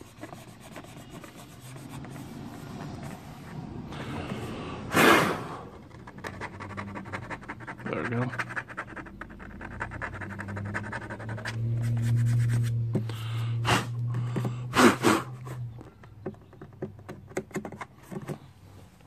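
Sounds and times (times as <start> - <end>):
fingertips scratching plastic: 0.0 - 4.4, 5.7 - 13.0, 14.1 - 18.6
loud breathy puffs: 3.9 - 5.8
low steady hum: 9.2 - 16.6.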